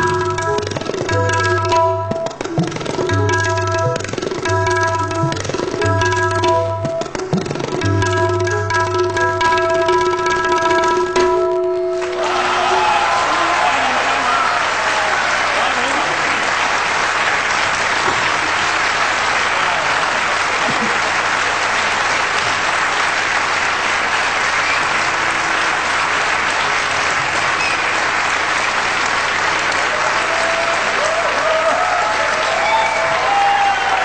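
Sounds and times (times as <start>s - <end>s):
audience applauding: 11.9s - 34.0s.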